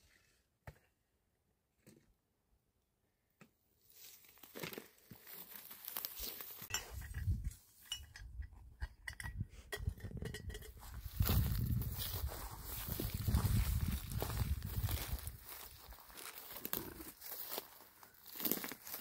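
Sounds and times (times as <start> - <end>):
crackles and clicks of straw: 4.0 - 6.7, 11.1 - 19.0
wind rumble on microphone: 7.0 - 15.8.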